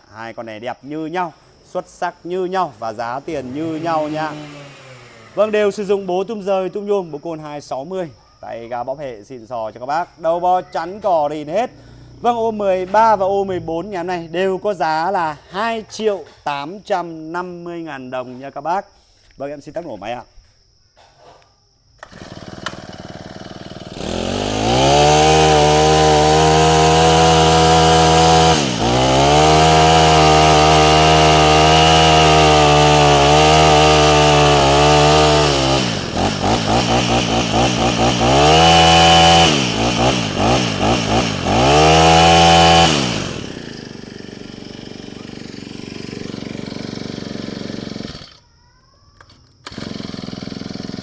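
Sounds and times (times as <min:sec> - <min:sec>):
brushcutter engine revving: 0:02.4 - 0:06.4, 0:22.0 - 0:48.4, 0:49.2 - 0:51.0.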